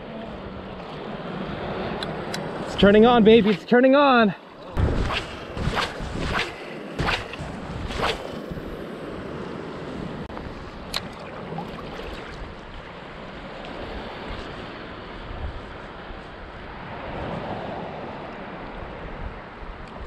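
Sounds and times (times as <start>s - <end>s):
wind noise on microphone: 4.7s - 13.0s, 13.7s - 20.0s
shallow ocean water washing: 10.5s - 15.0s.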